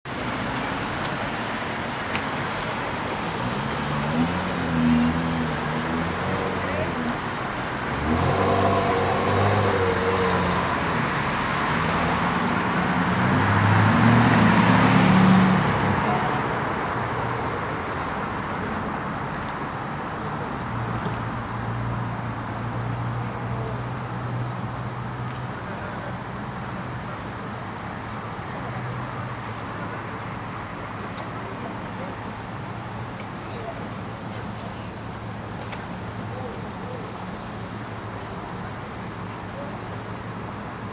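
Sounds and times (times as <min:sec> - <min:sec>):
steady traffic noise: 0:00.0 - 0:40.9
vehicle passing close by: 0:07.8 - 0:16.6.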